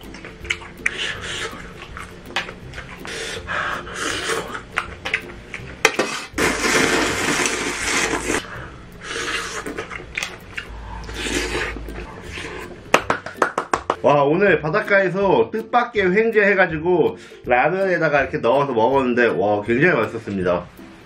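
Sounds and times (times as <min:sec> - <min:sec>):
loud slurp: 0:06.1 - 0:08.4, 0:11.0 - 0:12.7.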